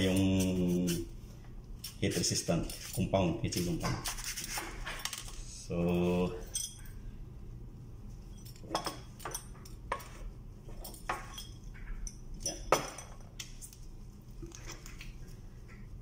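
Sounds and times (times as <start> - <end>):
metal parts clinking on countertop: 8.3 - 13.8.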